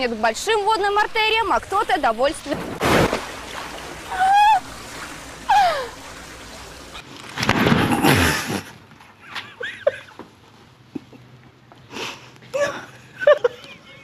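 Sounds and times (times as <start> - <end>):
woman shrieking: 4.1 - 4.7
giggling: 12.5 - 14.0.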